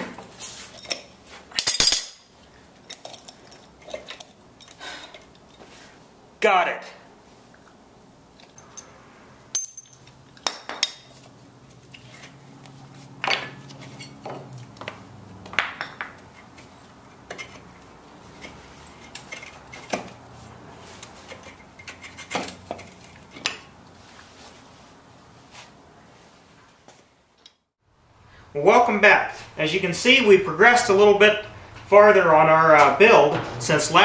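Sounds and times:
metal tools clinking: 0.7s - 5.7s, 8.4s - 14.6s, 15.8s - 20.2s.

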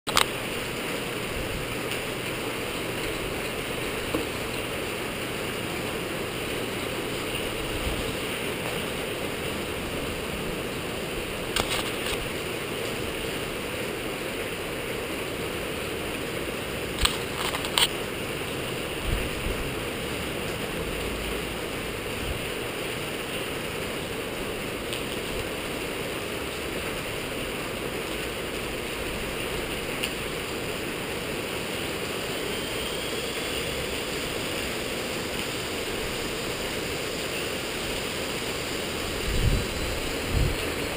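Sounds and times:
sharp clicks: 0.1s - 0.3s, 17.0s - 17.9s.

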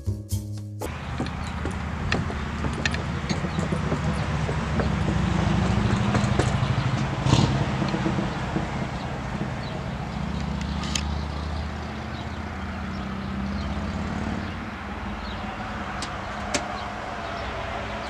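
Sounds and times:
low outdoor rumble: 0.9s - 12.0s
sharp knock: 1.2s - 9.9s.

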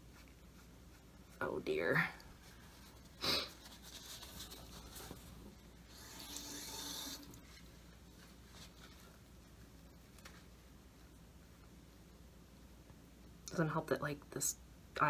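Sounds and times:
tissue rubbing and rustling: 0.0s - 5.9s, 7.4s - 11.2s.

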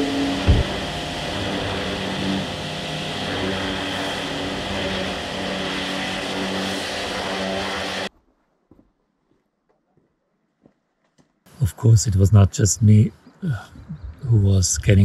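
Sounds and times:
pressure washer pump hum: 0.0s - 8.1s.

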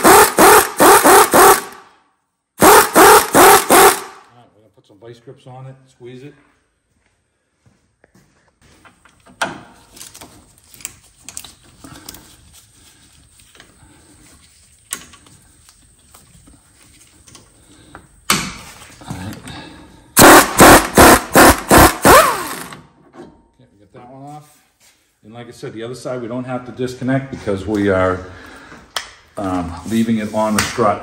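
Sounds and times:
impact gun hammering: 0.0s - 1.8s, 2.6s - 4.2s, 20.2s - 22.6s.

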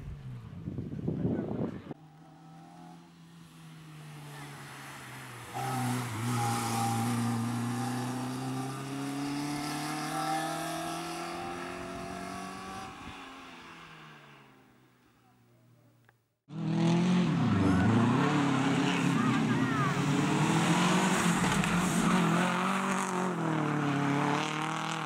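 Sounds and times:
rally car engine accelerating: 16.5s - 25.0s.

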